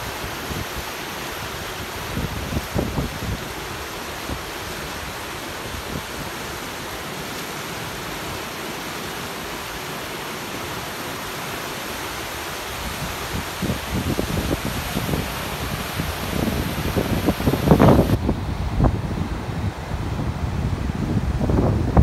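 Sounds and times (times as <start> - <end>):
floodwater rushing: 0.0 - 22.0
wind buffeting microphone: 1.5 - 6.3, 12.7 - 22.0.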